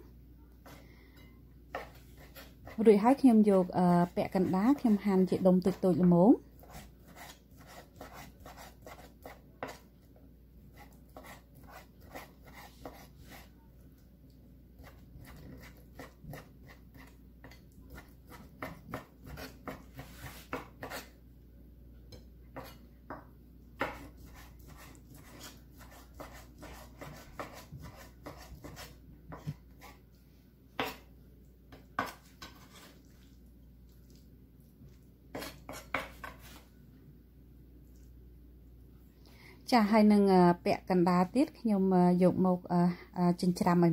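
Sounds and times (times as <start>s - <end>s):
knife chopping on wooden board: 14.8s - 21.1s, 22.6s - 23.2s, 23.8s - 30.0s, 30.8s - 31.1s, 35.3s - 36.5s.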